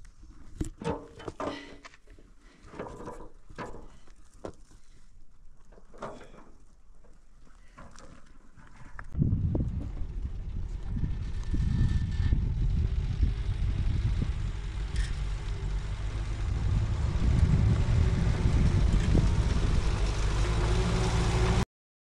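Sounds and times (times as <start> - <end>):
car engine running: 9.2 - 21.6.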